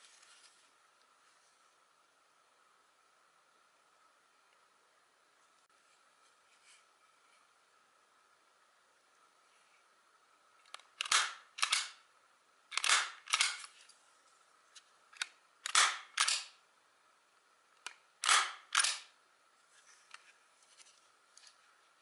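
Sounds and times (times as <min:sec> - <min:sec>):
stapler clacking: 0:10.8 - 0:12.0, 0:12.7 - 0:13.6, 0:15.2 - 0:16.5, 0:18.2 - 0:19.0.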